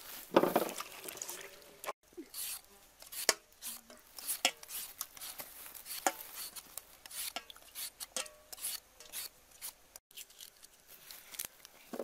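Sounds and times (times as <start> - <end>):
knife scraping mango peel: 2.2 - 10.8.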